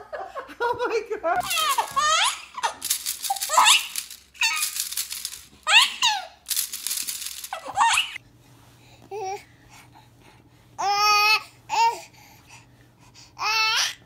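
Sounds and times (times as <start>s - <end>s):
baby giggling: 1.4s - 4.8s, 5.6s - 6.4s, 7.5s - 8.2s
plastic toy rings rattling: 1.4s - 8.2s.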